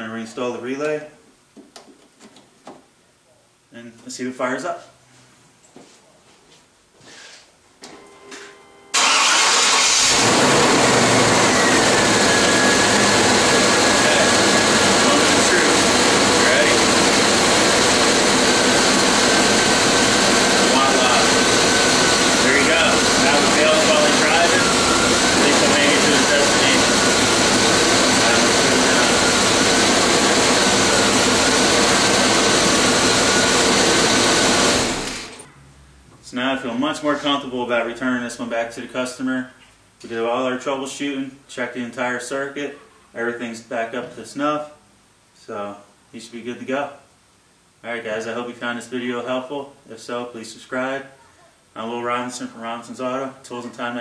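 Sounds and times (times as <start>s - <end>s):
engine starting and running: 7.9s - 35.9s.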